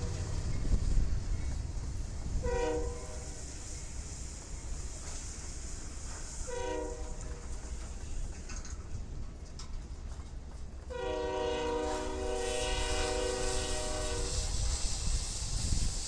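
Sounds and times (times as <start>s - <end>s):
rumble of passing freight cars: 0.0s - 16.0s
locomotive air horn chord: 2.4s - 3.5s, 6.5s - 7.3s, 10.9s - 14.6s.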